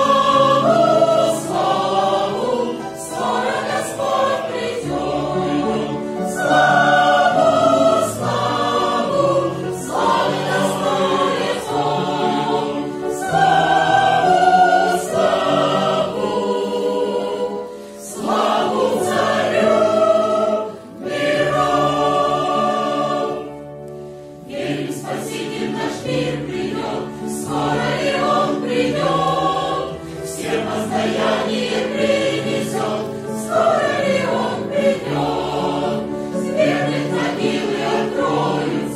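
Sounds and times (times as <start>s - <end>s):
mixed choir singing a hymn: 0.0s - 38.9s.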